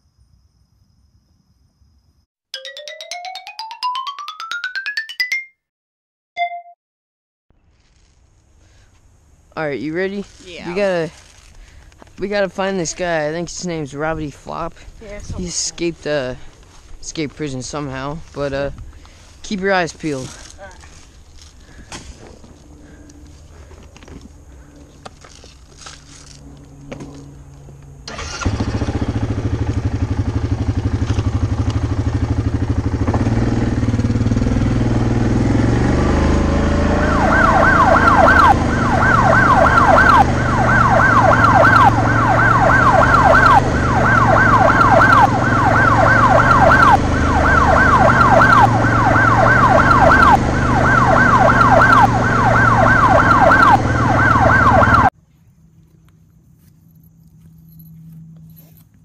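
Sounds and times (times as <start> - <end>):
atv engine running: 20.3 - 55.1
siren yelping: 36.4 - 55.1.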